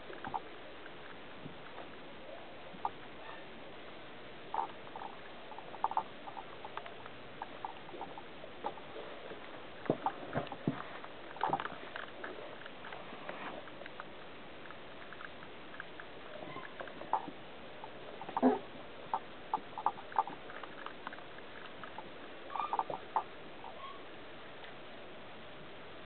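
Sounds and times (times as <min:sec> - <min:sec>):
puppies scuffling and tapping: 0:09.8 - 0:14.1
puppies squeaking: 0:22.5 - 0:24.0.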